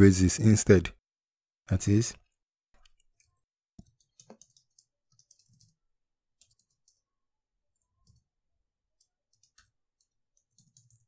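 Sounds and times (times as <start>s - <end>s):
keyboard typing clicks: 2.8s - 5.8s, 6.4s - 7.1s, 7.7s - 11.0s.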